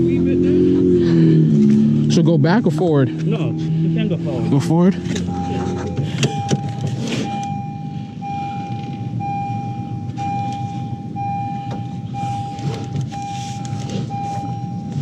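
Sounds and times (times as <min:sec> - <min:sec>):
low steady rumble: 0:00.0 - 0:15.0
car warning chime beeping: 0:03.8 - 0:15.0.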